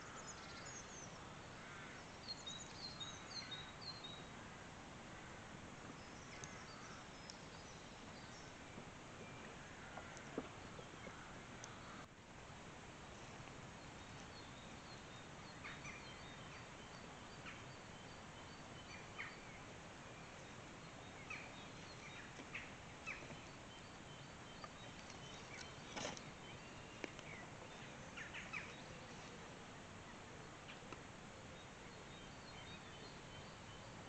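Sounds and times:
rustles and knocks from handling wood: 0:25.8 - 0:26.3.

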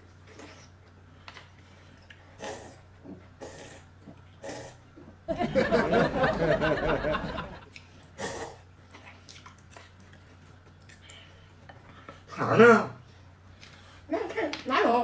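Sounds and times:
person laughing: 0:05.4 - 0:07.7.

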